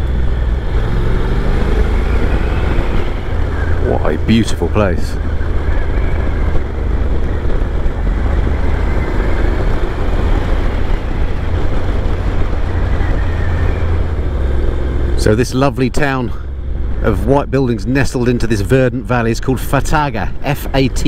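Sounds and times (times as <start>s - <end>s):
wind noise on microphone: 0.0s - 15.4s
motorcycle engine cruising: 0.0s - 21.0s
road noise: 0.0s - 21.0s.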